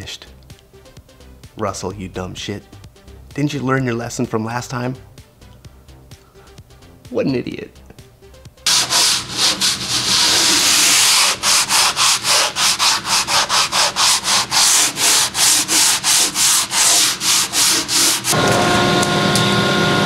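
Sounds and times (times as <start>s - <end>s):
hand sanding: 8.7s - 18.4s.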